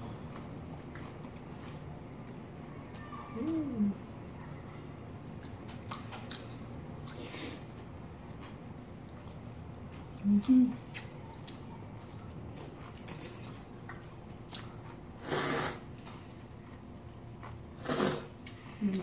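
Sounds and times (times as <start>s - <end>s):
quiet chewing: 0.0s - 3.8s, 5.3s - 19.0s
noodle slurp: 15.2s - 15.9s, 17.8s - 18.4s.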